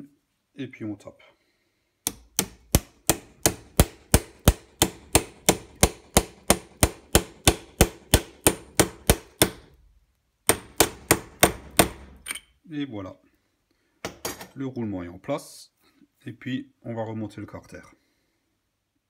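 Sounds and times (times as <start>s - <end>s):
hammer tapping metal tube: 2.0s - 9.7s, 10.5s - 12.4s.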